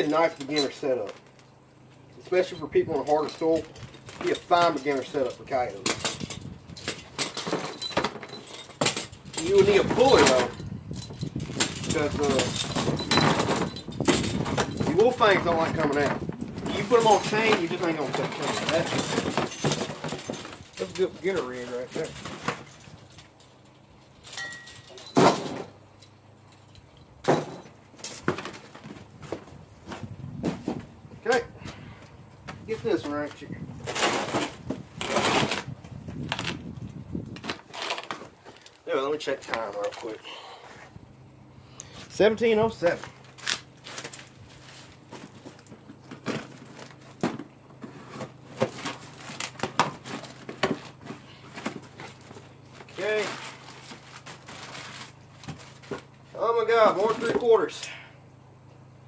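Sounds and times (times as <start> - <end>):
cardboard box scrapes and knocks: 33.8 - 35.7.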